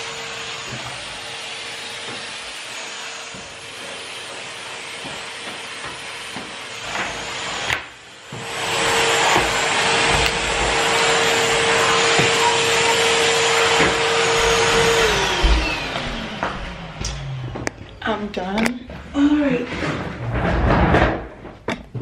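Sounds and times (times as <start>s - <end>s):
vacuum motor winding down: 0.0s - 18.7s
vacuum cleaner running: 0.0s - 20.8s
vacuum nozzle knocking: 3.2s - 17.8s.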